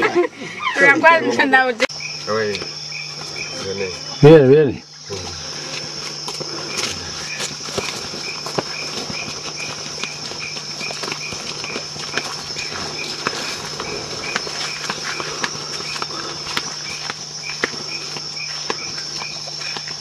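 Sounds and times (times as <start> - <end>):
lower pulsing insect call: 0.0 - 20.0
high-pitched insect drone: 0.1 - 20.0
footsteps on forest trail: 1.9 - 20.0.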